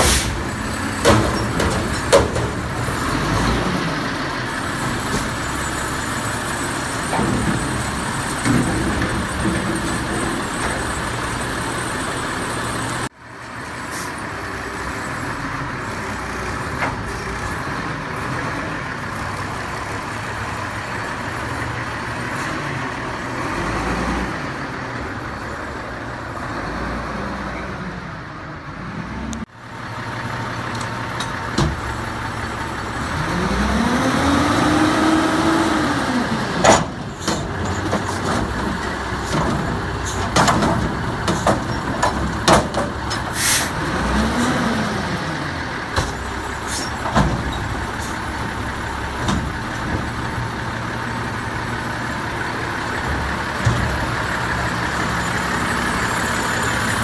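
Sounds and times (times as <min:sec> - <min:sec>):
diesel truck engine revving: 0:00.0 - 0:13.1, 0:14.3 - 0:57.0.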